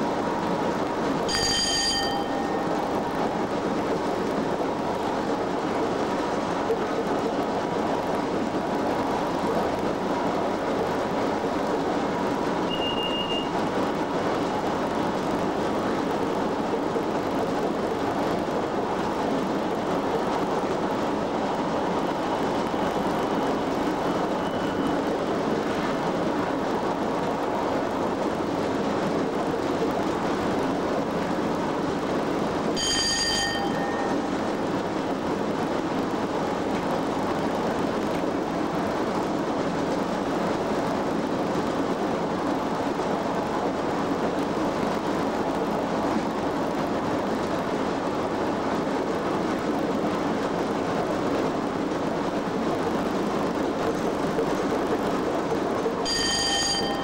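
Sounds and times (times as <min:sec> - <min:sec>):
train wheels on rail: 0:00.0 - 0:57.0
ringing tone: 0:01.3 - 0:02.7, 0:12.7 - 0:13.5, 0:32.8 - 0:34.2, 0:56.1 - 0:57.0.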